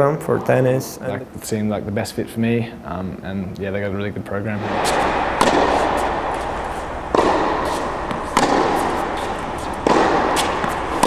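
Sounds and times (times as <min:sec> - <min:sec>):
tennis ball hits echoing: 0:04.6 - 0:11.0
tennis ball bouncing: 0:04.7 - 0:11.0.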